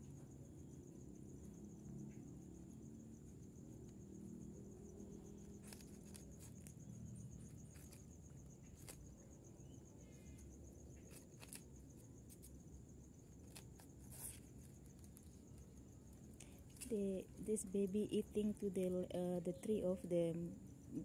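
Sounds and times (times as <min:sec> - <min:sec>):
high-pitched insect trill: 0:00.0 - 0:21.0
rabbits nibbling among dry leaves: 0:05.2 - 0:18.9.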